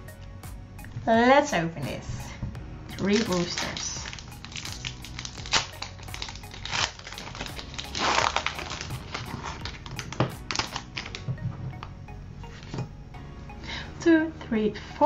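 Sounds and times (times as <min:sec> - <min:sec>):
soft background music: 0:00.0 - 0:15.0
foil pack crinkling: 0:02.9 - 0:11.3.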